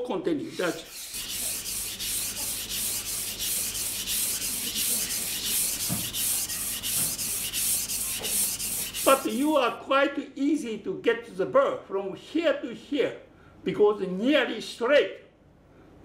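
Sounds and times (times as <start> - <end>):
knife rubbing on whetstone: 0.5 - 9.5.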